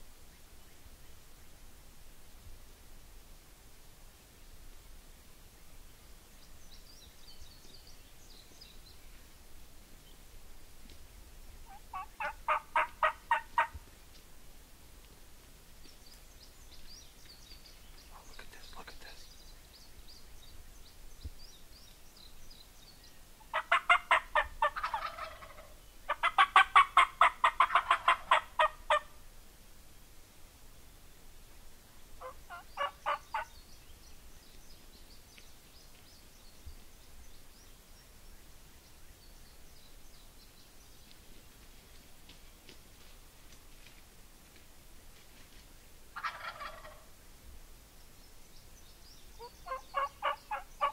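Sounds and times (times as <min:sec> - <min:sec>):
small birds chirping: 0:04.8 - 0:14.3, 0:15.7 - 0:29.0, 0:30.2 - 0:41.6, 0:46.2 - 0:47.1, 0:47.8 - 0:50.9
wild turkey calling: 0:11.6 - 0:14.1, 0:23.4 - 0:29.2, 0:32.2 - 0:33.6, 0:46.1 - 0:47.2, 0:49.4 - 0:50.9.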